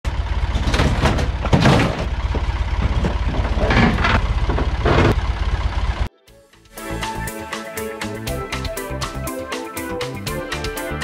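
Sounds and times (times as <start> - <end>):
tractor engine running: 0.0 - 6.1.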